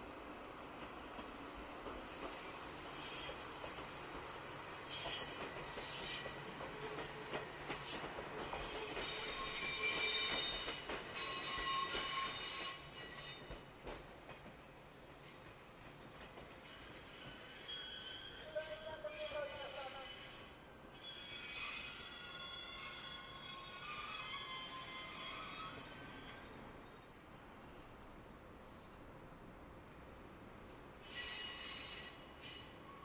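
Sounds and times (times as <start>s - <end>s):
train wheels squealing: 2.1s - 13.6s, 16.1s - 27.0s, 31.0s - 33.0s.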